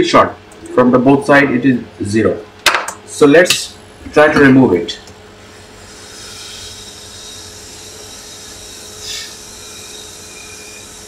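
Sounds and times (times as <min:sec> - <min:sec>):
hot air station hissing: 0:05.4 - 0:11.0.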